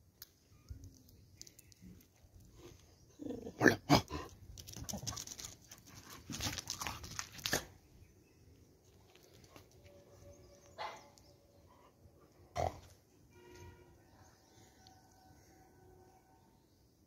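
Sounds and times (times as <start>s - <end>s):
dog barking: 10.8s - 11.2s.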